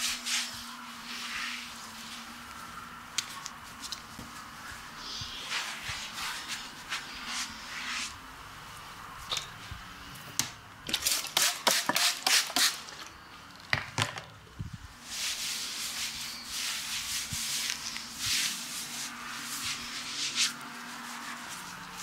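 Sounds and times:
towel rubbing wet skin: 0:15.1 - 0:22.0.

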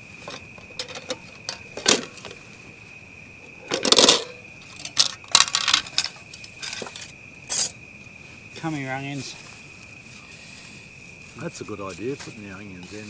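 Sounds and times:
high insect trill: 0:00.0 - 0:13.0
metal cooking gear clinking: 0:03.7 - 0:07.7.

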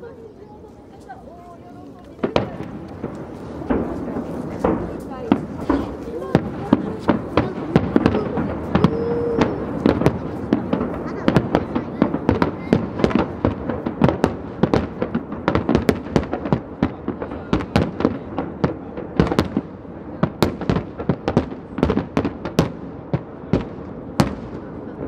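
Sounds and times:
firework shells bursting: 0:02.0 - 0:19.7.

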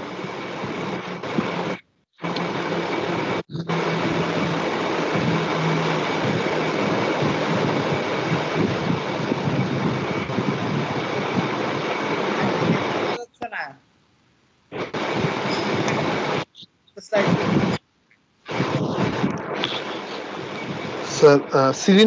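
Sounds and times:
faint wavering low hum: 0:00.0 - 0:13.2
steady rushing noise: 0:00.0 - 0:13.2, 0:14.7 - 0:17.8, 0:18.5 - 0:22.0.

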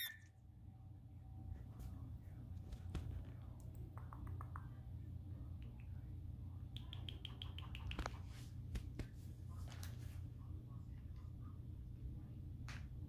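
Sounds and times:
parakeet squeaky chirps: 0:00.0 - 0:00.3
low steady hum: 0:00.0 - 0:13.0
parakeet beak clicks: 0:03.6 - 0:04.7, 0:06.7 - 0:08.2.

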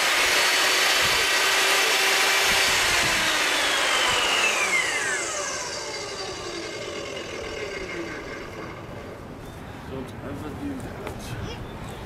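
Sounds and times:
table saw ripping board: 0:00.0 - 0:09.2
saw motor winding down: 0:00.0 - 0:09.4.

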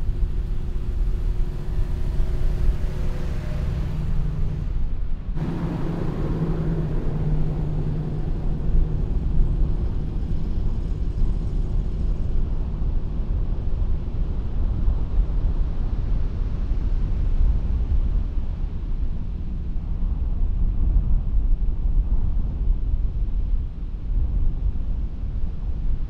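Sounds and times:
truck engine droning: 0:00.0 - 0:12.5
tyres rumbling on sand: 0:05.4 - 0:11.2.

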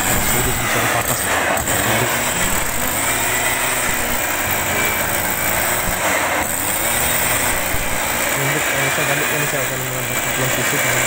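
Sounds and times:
mist blower engine running: 0:00.0 - 0:11.0.

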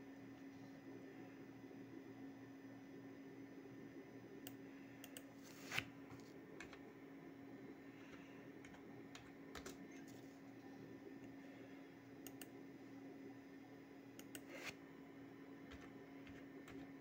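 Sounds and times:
faint keyboard and mouse clicks: 0:04.4 - 0:06.8, 0:08.1 - 0:10.3, 0:12.2 - 0:12.6, 0:14.2 - 0:14.8.

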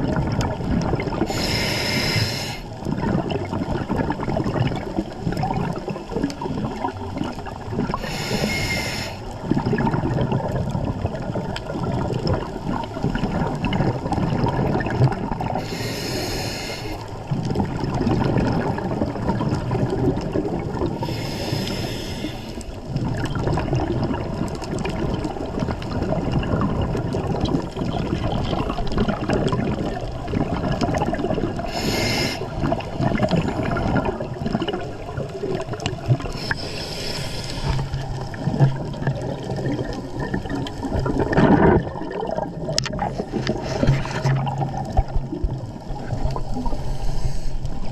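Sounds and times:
bubbles churning underwater: 0:00.0 - 0:47.9
diver breathing through regulator: 0:01.2 - 0:02.7, 0:07.9 - 0:09.4, 0:15.6 - 0:17.1, 0:21.0 - 0:22.8, 0:31.6 - 0:32.8, 0:36.2 - 0:38.1, 0:43.4 - 0:44.3, 0:46.6 - 0:47.9.

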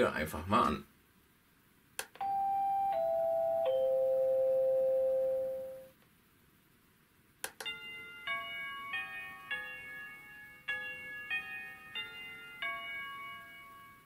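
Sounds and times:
electronic door chime ringtone: 0:02.2 - 0:05.9.

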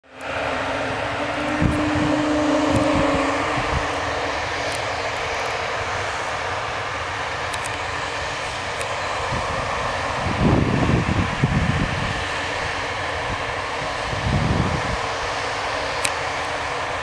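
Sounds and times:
held low tone: 0:00.0 - 0:05.2
jet engines howling: 0:00.0 - 0:17.0.

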